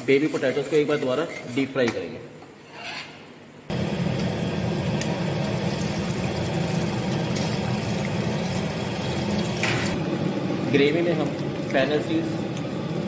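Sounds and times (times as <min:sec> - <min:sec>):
potatoes sizzling in hot oil: 0:03.7 - 0:10.0.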